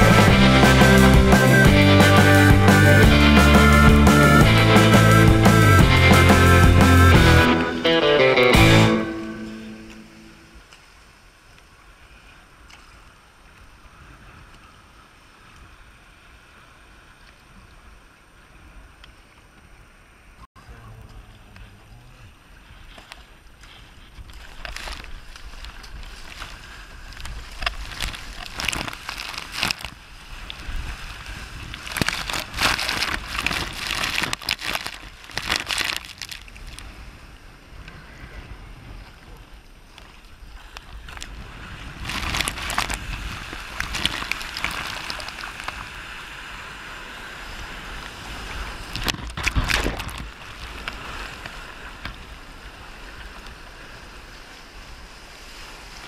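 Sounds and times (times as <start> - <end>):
low wind rumble: 0.0 - 7.7, 19.7 - 56.0
sea water splashing around kayak: 8.6 - 56.0
paddle strokes in water: 21.0 - 56.0.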